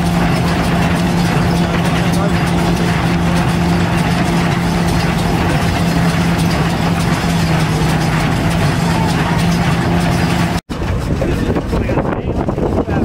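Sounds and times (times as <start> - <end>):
engine running steadily: 0.0 - 13.0
machinery clattering: 0.0 - 13.0.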